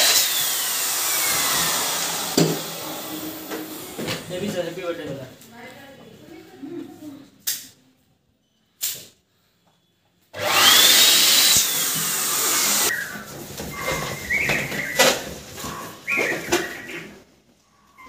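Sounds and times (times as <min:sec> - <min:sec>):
electric balloon inflator whining: 0:00.0 - 0:04.5, 0:10.4 - 0:13.2.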